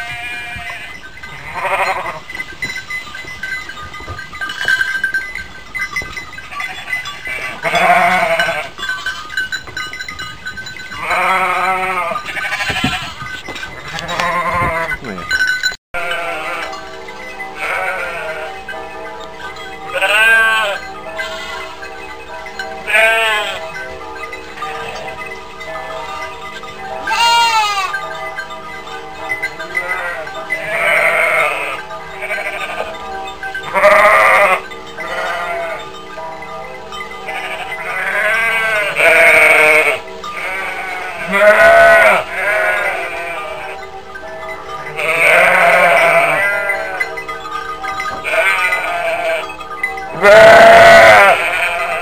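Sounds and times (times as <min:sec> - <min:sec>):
sheep bleating: 0:00.0 - 0:02.2, 0:07.3 - 0:08.7, 0:13.9 - 0:15.2, 0:17.6 - 0:18.5, 0:22.9 - 0:23.6, 0:27.0 - 0:28.0, 0:29.8 - 0:32.9, 0:37.3 - 0:43.8, 0:45.0 - 0:47.0, 0:50.1 - 0:52.0.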